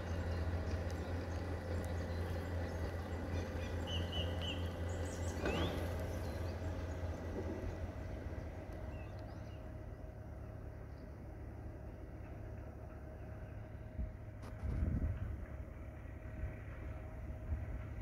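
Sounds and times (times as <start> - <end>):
small bird chirping: 0.0 - 7.2
steady low rumble: 0.0 - 18.0.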